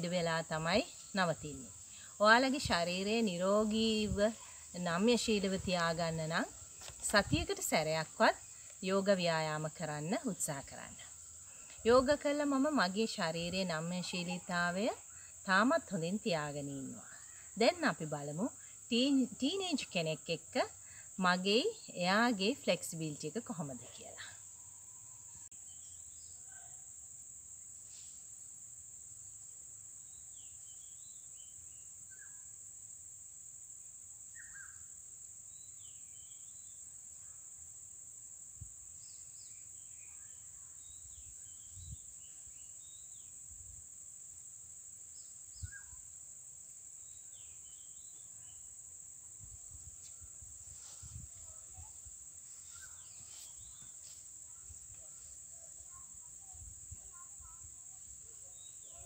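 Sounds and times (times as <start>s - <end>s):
insects chirring: 0.0s - 59.0s
bird chirps: 34.4s - 34.9s.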